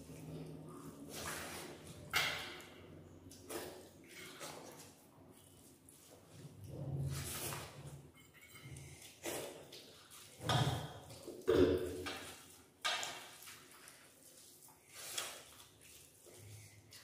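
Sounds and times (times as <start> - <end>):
hand mixing food: 0.0 - 17.0.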